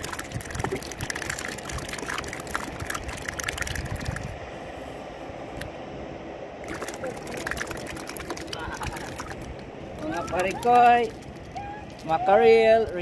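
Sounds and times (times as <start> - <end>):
rapid patter of small clicks: 0.0 - 4.3, 6.7 - 12.1, 12.7 - 13.0
water lapping: 0.0 - 4.4, 6.6 - 13.0
wind buffeting microphone: 0.0 - 5.5.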